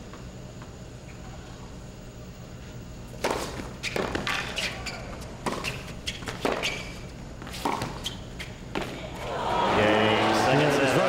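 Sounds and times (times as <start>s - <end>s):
tennis ball bouncing: 7.4s - 9.0s.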